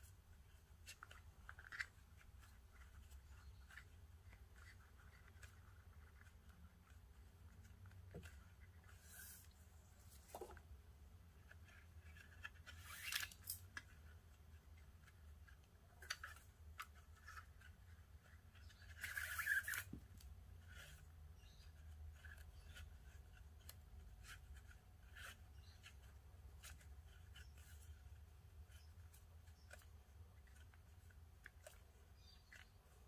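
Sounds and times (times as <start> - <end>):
cord rustling and swishing: 0.0 - 10.8.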